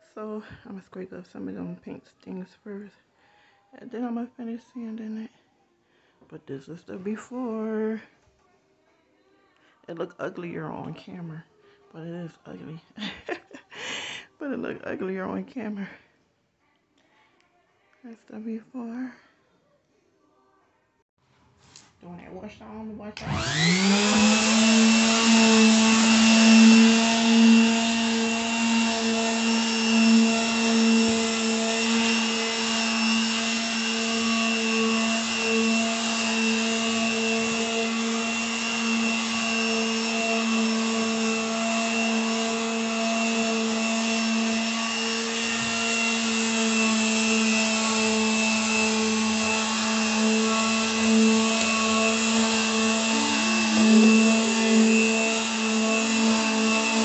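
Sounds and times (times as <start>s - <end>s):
electric sander humming on wood: 23.2s - 57.0s.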